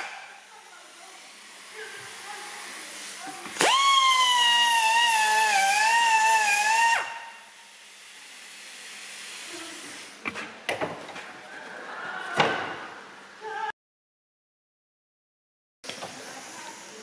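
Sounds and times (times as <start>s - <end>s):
die grinder whining: 3.6s - 7.2s.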